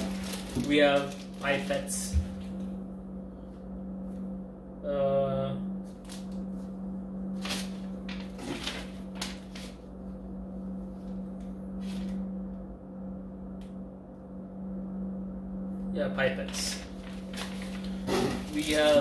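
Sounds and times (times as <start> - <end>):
paper and plastic rustling: 0.0 - 2.0, 7.4 - 9.8, 16.5 - 19.0
steady low hum: 0.0 - 19.0.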